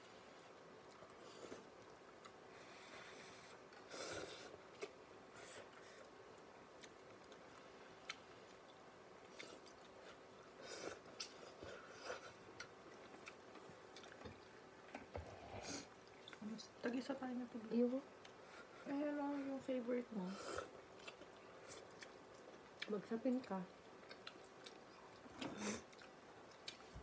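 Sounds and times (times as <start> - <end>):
person chewing noodles: 0.5 - 14.6, 20.4 - 22.9, 23.7 - 27.0.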